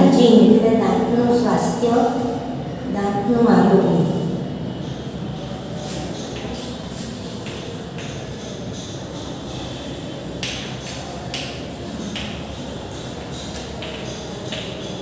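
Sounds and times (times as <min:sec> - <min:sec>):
chalk scratching on chalkboard: 0:04.8 - 0:15.0.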